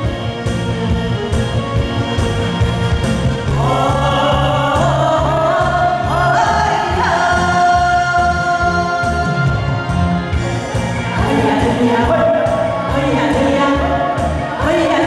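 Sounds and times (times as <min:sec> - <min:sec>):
backing track with steady beat: 0:00.0 - 0:15.0
man and woman singing duet: 0:03.5 - 0:10.0, 0:11.1 - 0:15.0.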